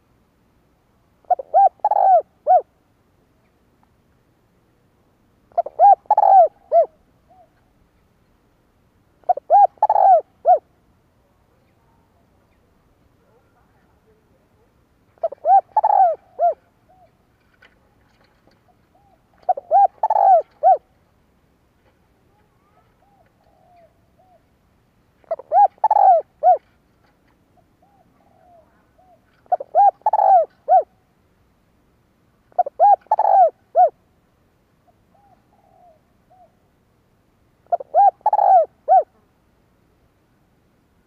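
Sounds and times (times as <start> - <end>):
dove cooing: 1.2 - 2.8, 5.5 - 7.7, 9.2 - 10.7, 15.2 - 17.2, 18.1 - 21.0, 22.6 - 24.5, 25.2 - 26.8, 27.5 - 31.0, 32.5 - 34.0, 34.8 - 36.6, 37.6 - 39.3.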